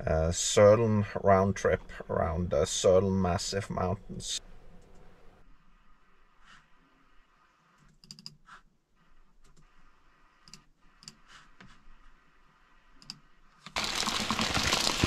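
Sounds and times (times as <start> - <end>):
computer mouse clicks: 7.8 - 8.4, 10.4 - 11.3, 13.0 - 13.2.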